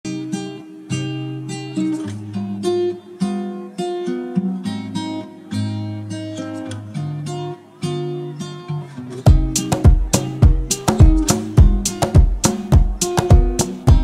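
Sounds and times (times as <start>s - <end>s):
acoustic guitar strummed chords: 0.1s - 14.0s.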